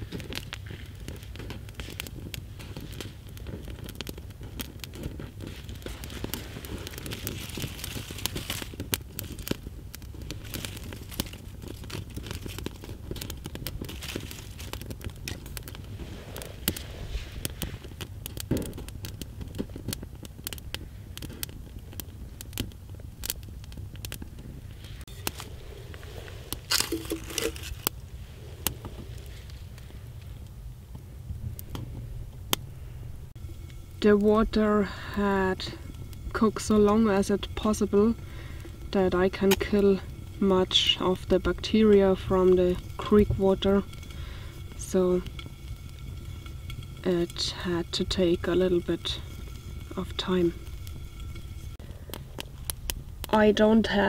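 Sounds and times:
twigs and leaves rustling: 0:00.0 - 0:19.9, 0:24.2 - 0:30.4, 0:33.4 - 0:53.2
campfire crackling and popping: 0:00.0 - 0:54.0
metal cup clattering: 0:26.8 - 0:27.8.

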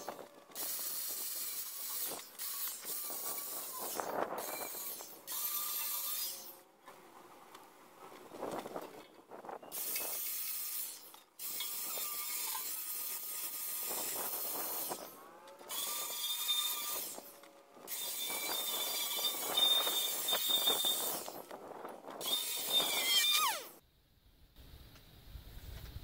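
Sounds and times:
angle grinder grinding steel: 0:00.0 - 0:07.6, 0:09.8 - 0:21.4, 0:22.2 - 0:23.8
grinder motor whine: 0:11.4 - 0:21.5, 0:22.2 - 0:23.8.

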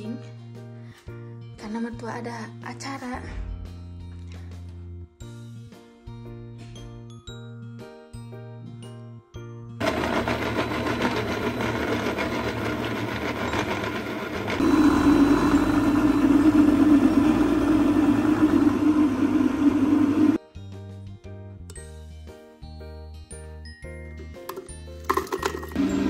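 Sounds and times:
light background music: 0:00.0 - 0:09.8, 0:20.4 - 0:26.0
blender chopping: 0:09.8 - 0:20.4, 0:25.1 - 0:26.0.

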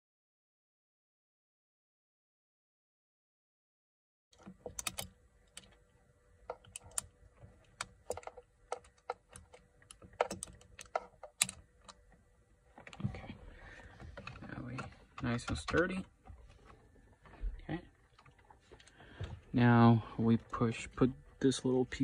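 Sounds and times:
sharp clicks of key turning bolt: 0:04.4 - 0:05.8, 0:06.5 - 0:07.1, 0:07.8 - 0:12.0.

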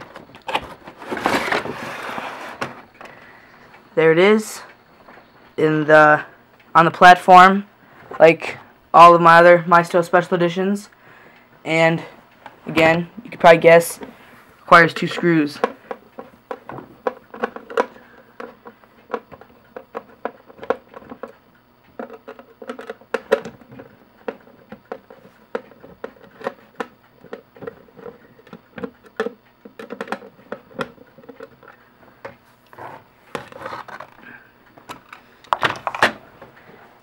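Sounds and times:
plastic clicks taps and scrapes: 0:15.6 - 0:32.4.

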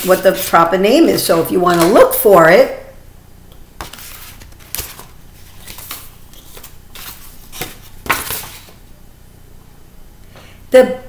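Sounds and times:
paper rustling: 0:00.0 - 0:02.2, 0:03.8 - 0:08.8.

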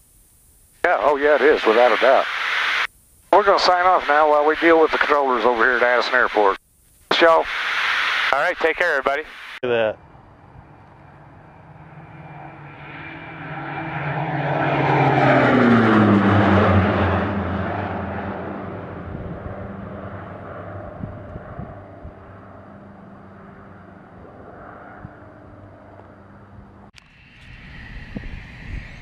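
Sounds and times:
propeller plane flying by: 0:09.7 - 0:29.0.

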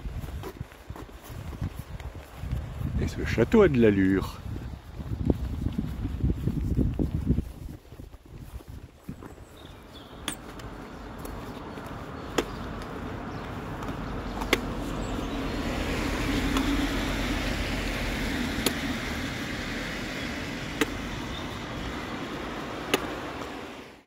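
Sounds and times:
car engine: 0:10.3 - 0:24.0
tyres hissing on wet street: 0:10.6 - 0:24.0
sharp ticks: 0:18.5 - 0:19.1.

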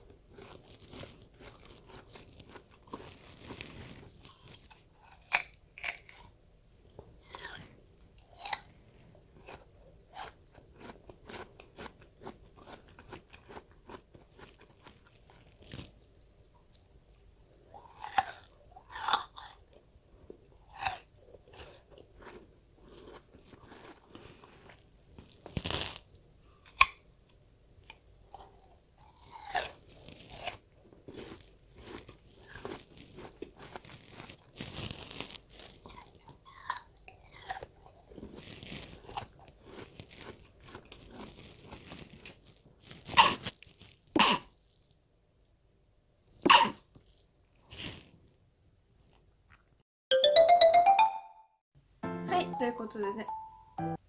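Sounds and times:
person chewing crisp pear: 0:00.0 - 0:44.1.

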